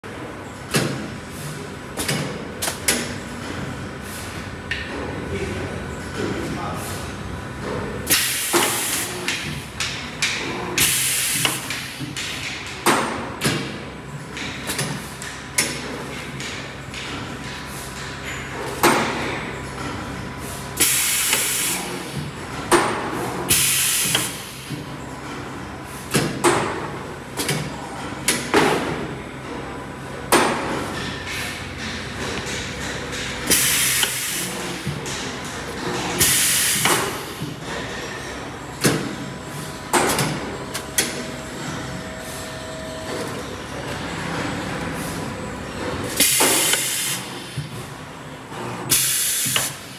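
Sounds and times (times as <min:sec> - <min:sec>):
steady machine hum: 0:00.0 - 0:49.9.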